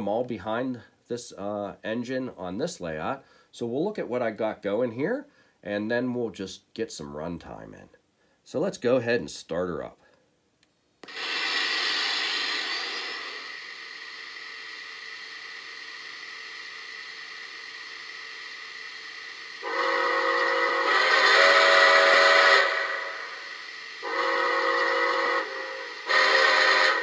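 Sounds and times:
steam hissing: 11.0s - 27.0s
steam whistle blowing: 18.0s - 27.0s.

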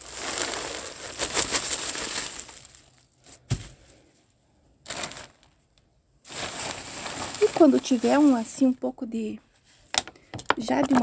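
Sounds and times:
dry leaves crackling: 0.0s - 3.1s, 6.3s - 8.8s
plastic bag crinkling: 0.0s - 3.6s, 4.8s - 8.8s
dull thump: 3.5s - 3.8s.

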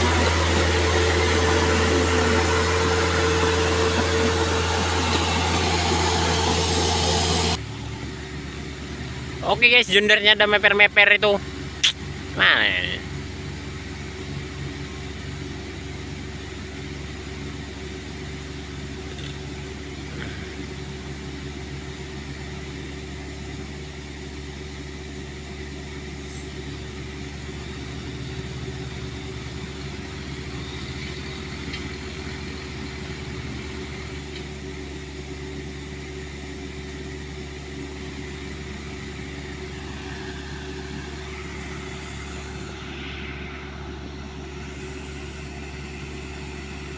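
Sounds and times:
engine note rising: 0.0s - 11.2s, 37.1s - 46.9s
diesel engine idling: 0.0s - 46.9s.

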